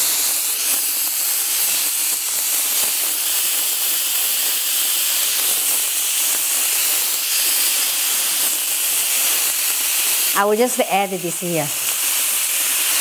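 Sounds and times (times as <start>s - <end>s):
meat sizzling on grill pan: 0.0s - 13.0s.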